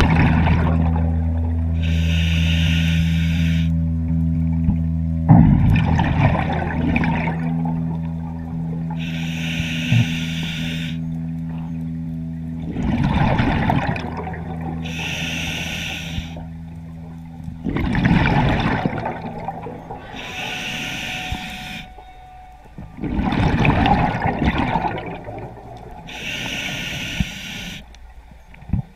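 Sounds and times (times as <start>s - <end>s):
exhaled bubbles gurgling: 0.0s - 3.7s, 5.3s - 28.9s
regulator inhale hissing: 1.8s - 3.8s, 8.9s - 11.2s, 14.8s - 16.5s, 20.0s - 22.2s, 26.0s - 28.0s.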